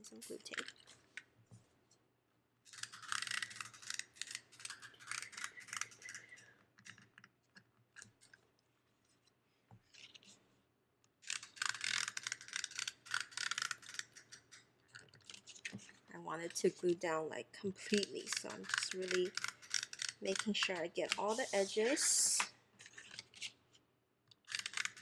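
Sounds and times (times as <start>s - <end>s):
glue tape roller scratching paper: 2.7s - 6.4s, 11.2s - 14.5s, 17.9s - 23.6s, 24.4s - 25.0s.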